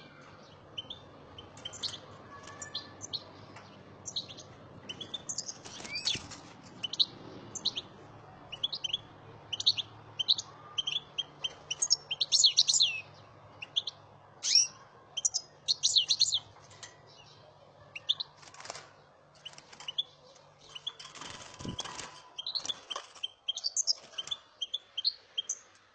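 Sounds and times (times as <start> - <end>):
finches chirping and twittering: 0.0 - 25.8.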